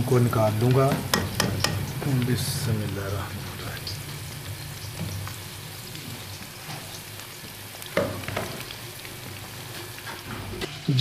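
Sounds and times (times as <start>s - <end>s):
oil sizzling while deep-frying: 0.0s - 11.0s
metal skimmer knocking on pan: 0.9s - 2.0s.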